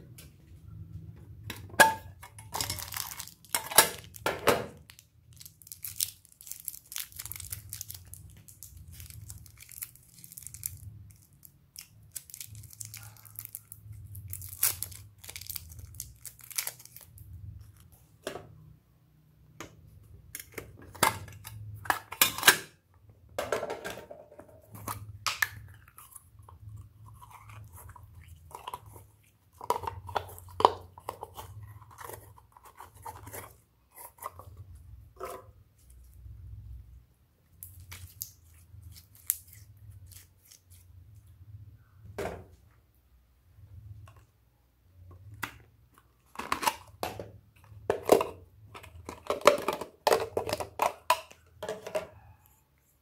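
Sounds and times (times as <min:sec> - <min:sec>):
plastic crinkling and tearing: 0:02.4 - 0:17.9, 0:37.6 - 0:40.9.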